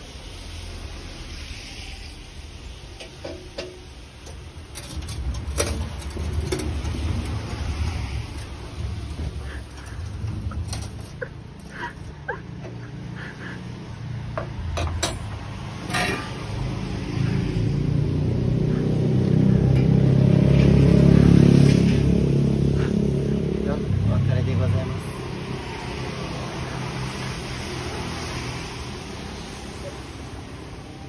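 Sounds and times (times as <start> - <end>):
metal tray clanking and scraping: 3.0 - 12.2, 14.7 - 16.8
low motor rumble: 3.0 - 13.3.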